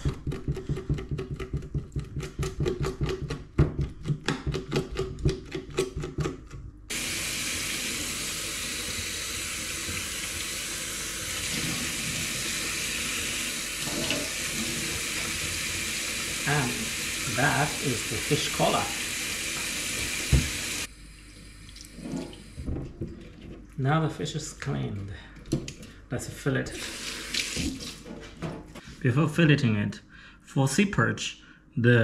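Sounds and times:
kitchen tap running: 6.9 - 22.8, 26.7 - 28.1.

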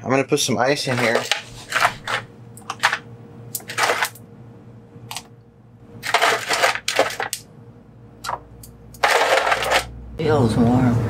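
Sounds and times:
faint steady hum: 0.0 - 11.0
ice cubes clattering: 0.9 - 3.0, 3.6 - 4.2, 6.0 - 7.4, 9.0 - 9.9.

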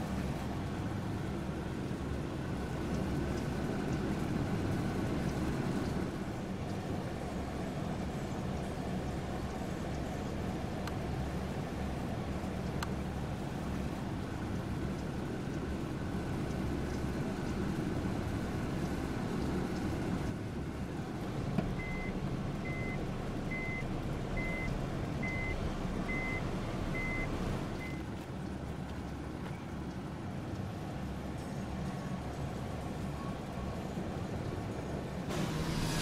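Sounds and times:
vehicle reversing alarm beeps: 21.8 - 28.0.

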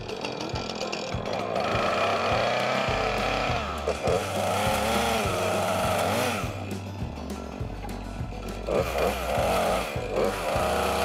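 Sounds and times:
chainsaw revving: 0.0 - 6.7, 8.6 - 11.0
background music: 0.0 - 11.0.

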